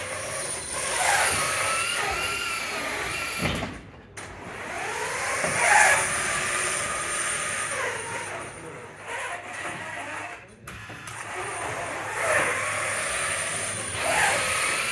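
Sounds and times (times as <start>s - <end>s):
electric motors whining: 0.0s - 14.9s.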